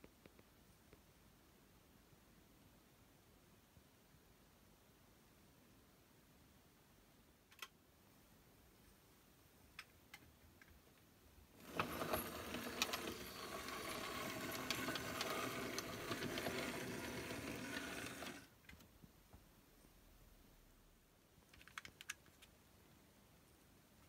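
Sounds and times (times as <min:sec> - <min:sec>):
model train motor whirring: 0:11.6 - 0:18.5
wheels clicking on rails: 0:11.6 - 0:18.5.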